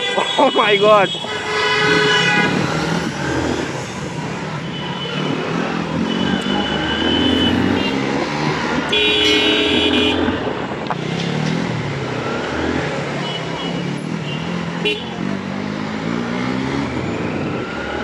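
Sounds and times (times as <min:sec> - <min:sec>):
vehicle horns honking: 0:00.0 - 0:03.0, 0:04.6 - 0:08.1, 0:08.8 - 0:10.6, 0:13.2 - 0:15.3
motorcycle engines running: 0:01.8 - 0:18.0.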